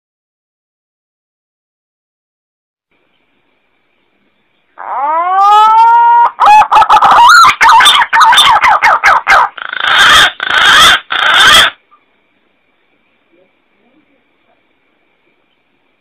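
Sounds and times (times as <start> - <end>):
pigeon calling: 4.8 - 12.0.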